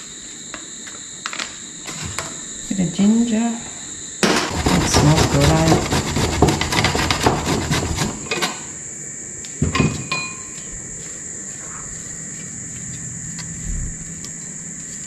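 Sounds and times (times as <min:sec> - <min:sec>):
knife chopping on board: 0:04.2 - 0:08.6.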